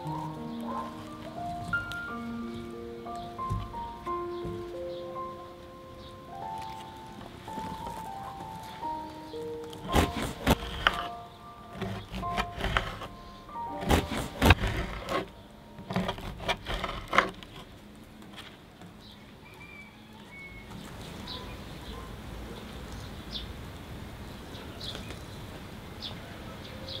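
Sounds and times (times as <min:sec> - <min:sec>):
knife sawing through bread crust: 0:09.8 - 0:11.1, 0:11.7 - 0:13.1, 0:13.8 - 0:15.3, 0:15.9 - 0:17.6
high bird chirps: 0:19.1 - 0:21.6.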